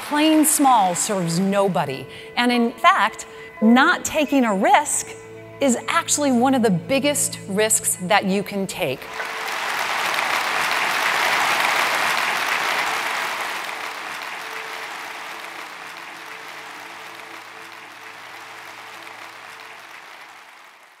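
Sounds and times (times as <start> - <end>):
audience applauding: 0.0 - 1.5, 9.1 - 21.0.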